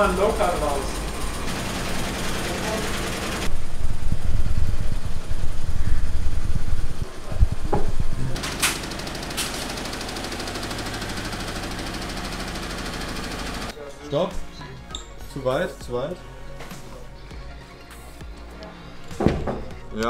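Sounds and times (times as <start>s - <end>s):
low mechanical rumble: 0.0s - 13.0s
sharp knocks: 19.2s - 19.8s.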